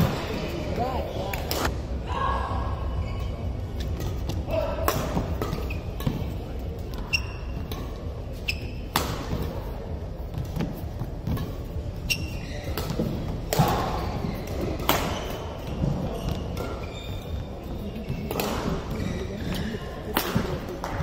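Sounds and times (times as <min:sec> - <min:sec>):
shoes squeaking on court: 0:03.0 - 0:04.4, 0:05.0 - 0:20.7
racket striking shuttlecock: 0:04.0 - 0:06.3, 0:07.2 - 0:09.5, 0:10.6 - 0:16.9, 0:20.1 - 0:21.0.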